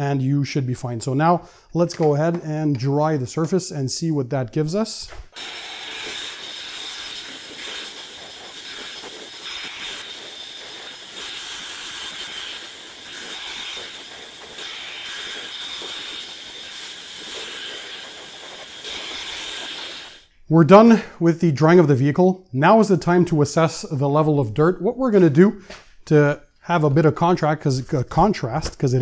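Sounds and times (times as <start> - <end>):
leaf blower running: 5.4 - 20.2.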